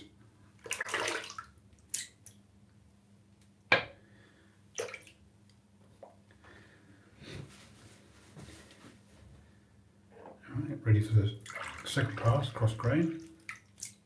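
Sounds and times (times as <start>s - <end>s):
water splashing in sink: 0.6s - 2.4s, 4.7s - 5.2s, 11.3s - 14.0s.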